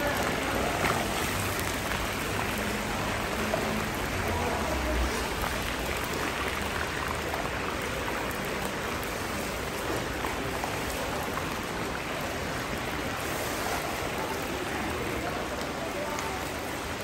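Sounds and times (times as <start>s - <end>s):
meat sizzling in hot oil: 0.0s - 11.0s, 11.7s - 14.4s.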